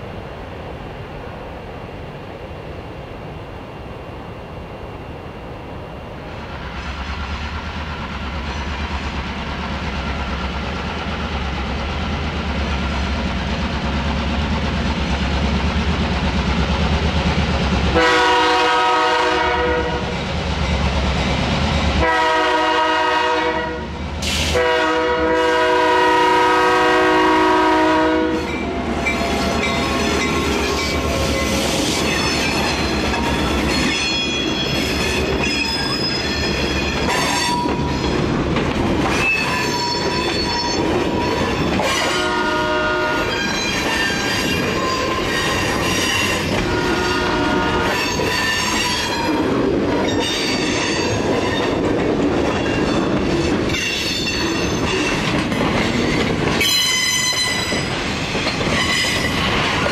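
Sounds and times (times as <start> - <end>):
diesel locomotive engine rumbling: 0.0 - 59.9
train air horn blasts: 17.9 - 20.1, 22.0 - 28.6, 41.8 - 43.4, 46.6 - 48.8
wheel squeal on rails: 28.4 - 38.2, 39.1 - 42.2, 43.3 - 47.2, 47.8 - 49.4, 52.5 - 59.5.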